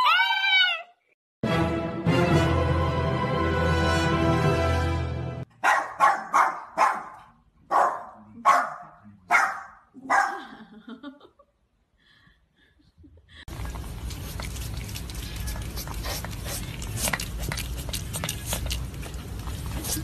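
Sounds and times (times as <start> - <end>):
dog barking: 5.6 - 10.4.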